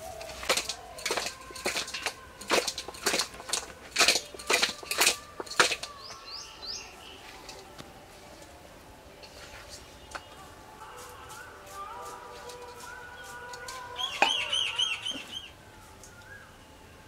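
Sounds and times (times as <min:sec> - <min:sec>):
hands slapping fish in metal bowl: 0:00.0 - 0:06.0
bird chirping: 0:04.2 - 0:07.8, 0:09.3 - 0:17.0.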